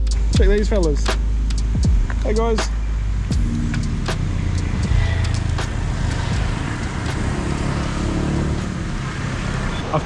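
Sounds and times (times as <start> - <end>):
low rumble of motor vehicles: 0.0 - 10.0.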